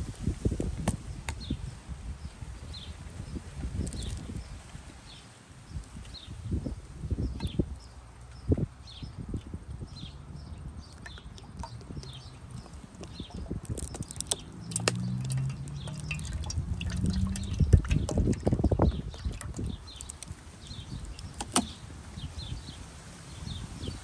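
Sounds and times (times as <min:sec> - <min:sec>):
water pouring into metal pot: 0:12.9 - 0:21.4.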